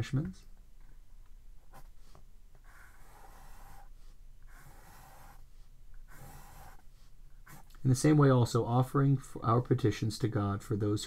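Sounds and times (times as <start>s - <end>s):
pencil scratching on paper: 1.7s - 7.8s.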